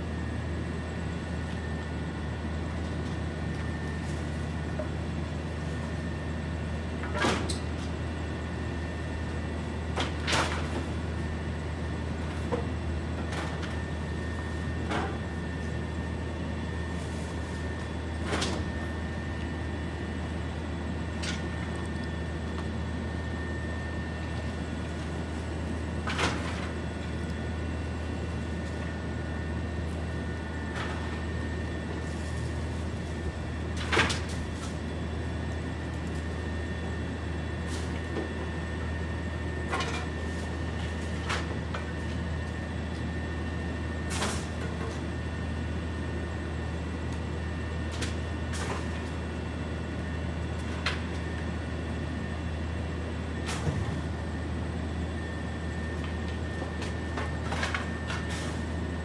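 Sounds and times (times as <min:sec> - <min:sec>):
garbage truck running: 0:24.3 - 0:45.1, 0:46.0 - 0:52.3, 0:53.0 - 0:59.0.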